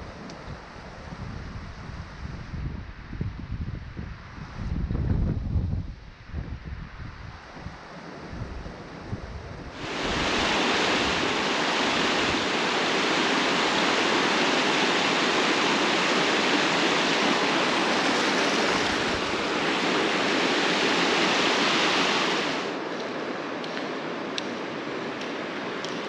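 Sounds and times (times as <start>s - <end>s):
river water rushing over rocks: 9.8s - 22.8s.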